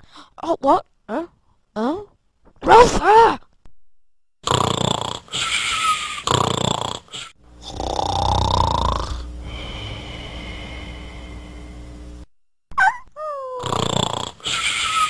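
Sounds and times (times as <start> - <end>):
dog snoring: 4.4 - 5.3, 6.2 - 10.2, 13.6 - 14.5
quieter steady sound: 9.2 - 12.3.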